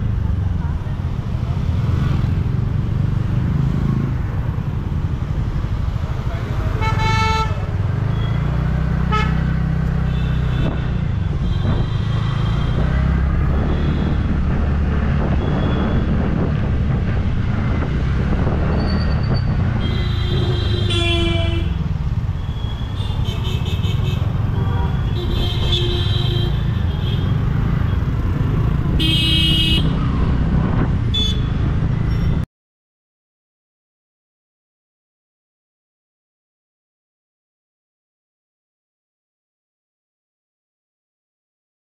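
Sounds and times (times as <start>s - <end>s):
traffic rumble: 0.0s - 32.5s
vehicle horns honking: 6.8s - 8.4s, 9.1s - 9.4s, 19.8s - 21.8s, 22.5s - 27.4s, 29.0s - 30.0s.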